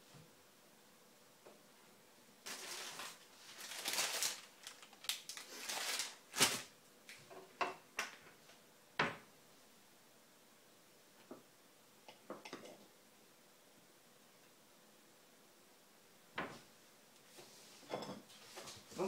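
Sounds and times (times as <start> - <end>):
plastic wrapper crinkling: 2.4 - 6.7.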